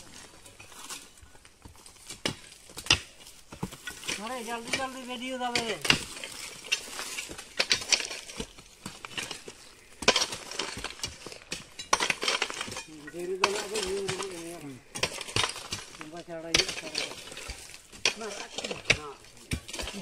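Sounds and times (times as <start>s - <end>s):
stones and tools clinking: 0.0s - 20.0s
person's voice: 13.0s - 14.8s.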